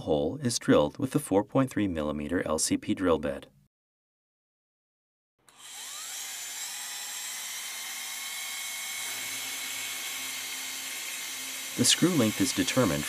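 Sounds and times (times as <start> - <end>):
power drill high whine: 5.5 - 13.0.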